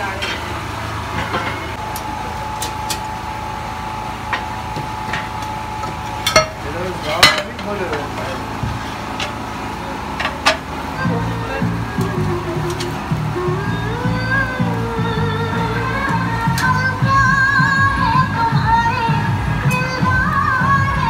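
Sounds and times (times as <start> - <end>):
ladle clanking on metal: 0.0 - 1.8, 4.3 - 9.5, 10.1 - 10.8
machine hum: 0.0 - 21.0.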